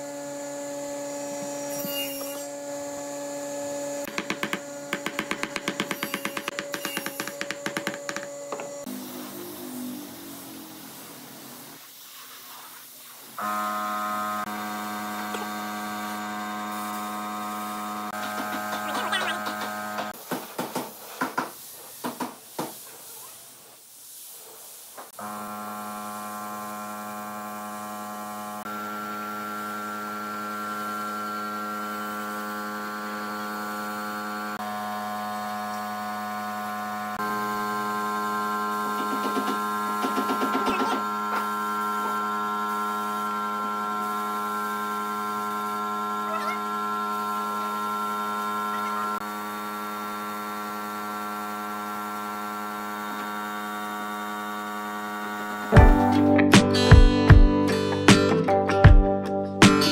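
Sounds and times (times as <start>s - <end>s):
spray gun hissing: 8.8s - 13.4s, 21.0s - 25.0s.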